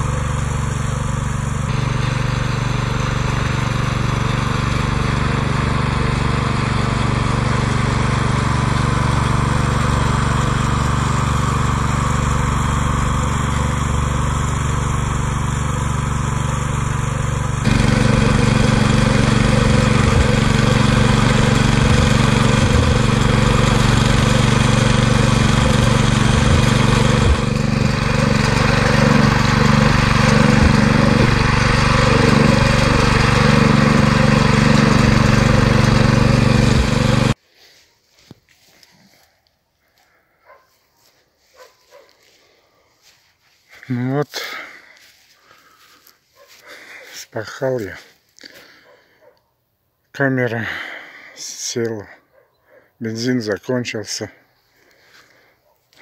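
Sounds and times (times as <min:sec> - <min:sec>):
walk-behind tractor engine running: 0:00.0 - 0:37.4.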